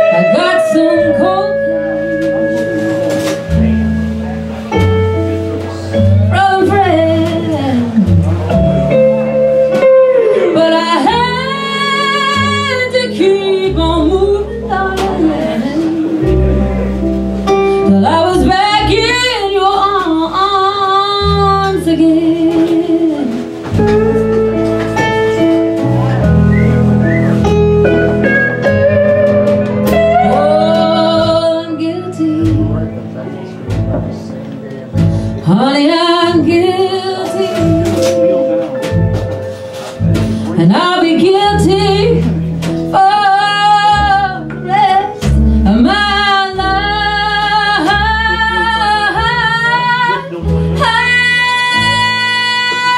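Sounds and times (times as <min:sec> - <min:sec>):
woman singing: 0:00.0 - 0:02.4, 0:06.2 - 0:08.2, 0:10.2 - 0:16.5, 0:17.8 - 0:23.5, 0:29.8 - 0:33.0, 0:35.4 - 0:38.4, 0:40.5 - 0:52.9
electric keyboard: 0:00.0 - 0:52.9
live band playing slow song: 0:00.0 - 0:52.9.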